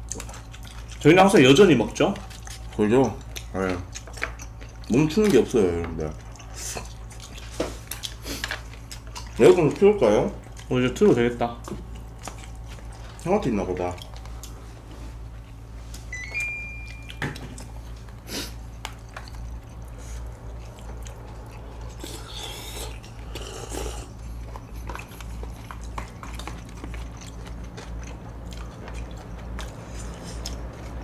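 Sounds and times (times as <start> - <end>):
chewing: 0.0 - 16.1, 16.8 - 31.0
steady low hum: 0.0 - 31.0
short electronic beep: 16.1 - 17.4.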